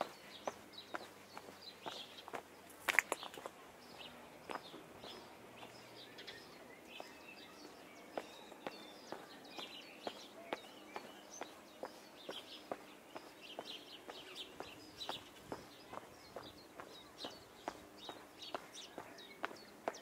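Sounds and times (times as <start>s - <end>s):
footsteps walking: 0.0s - 7.2s
small birds chirping: 0.0s - 20.0s.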